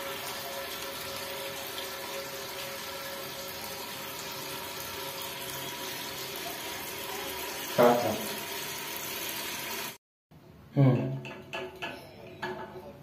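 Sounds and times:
water running into toilet cistern: 0:00.0 - 0:10.0.

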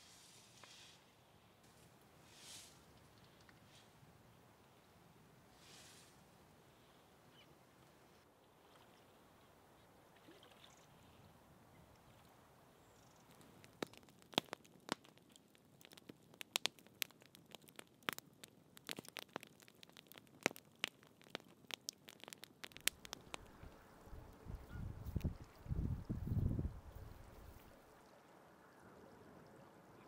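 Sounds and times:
campfire crackling and popping: 0:12.4 - 0:24.2.

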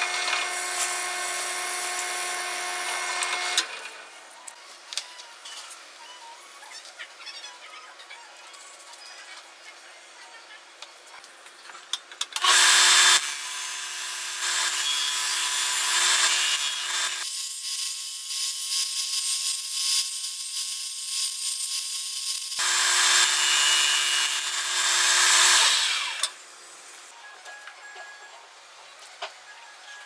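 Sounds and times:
sanding disc grinding wood: 0:22.6 - 0:26.2
sander motor hum: 0:22.6 - 0:26.4.

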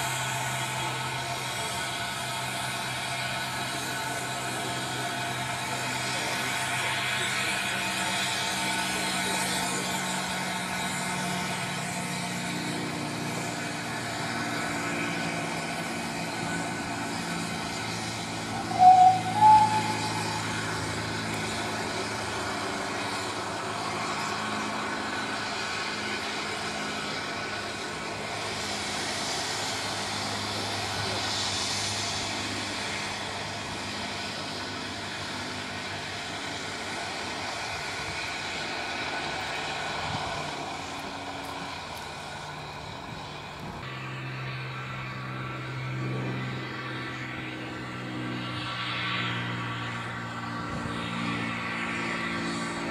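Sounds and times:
locomotive engine drone: 0:00.0 - 0:52.9
train whistle toots: 0:18.5 - 0:21.2.

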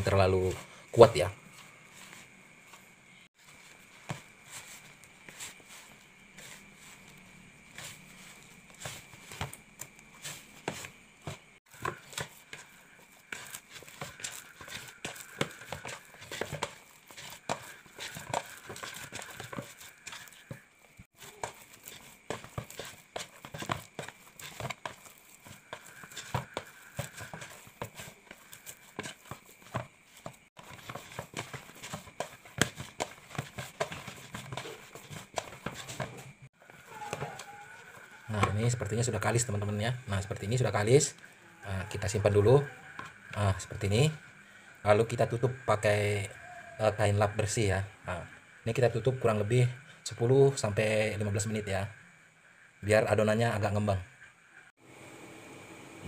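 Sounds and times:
hands kneading dough in bowl: 0:00.0 - 0:44.2.

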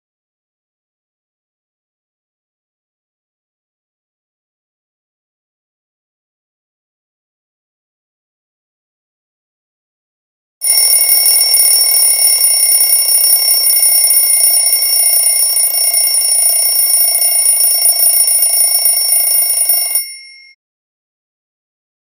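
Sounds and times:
alarm clock bell ringing: 0:10.6 - 0:20.6.

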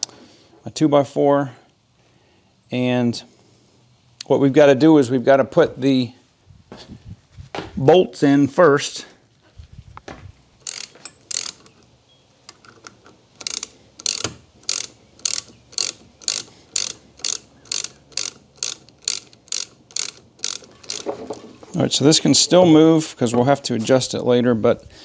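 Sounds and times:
socket ratchet clicking: 0:10.6 - 0:21.4.

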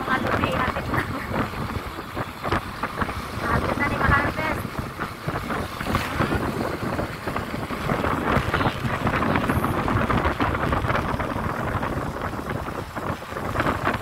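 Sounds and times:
steady low rumble: 0:00.0 - 0:14.0
wind buffeting microphone: 0:00.0 - 0:14.0.

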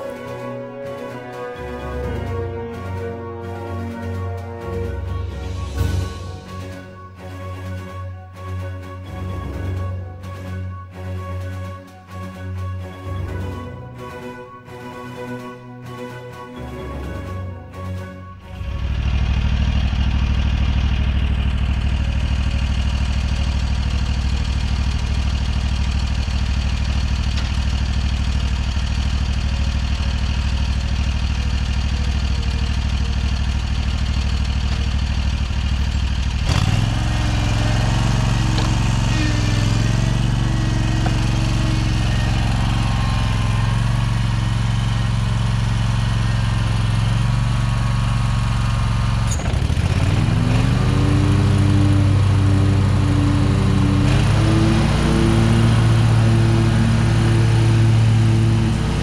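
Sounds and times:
mower engine running: 0:18.4 - 0:59.0.

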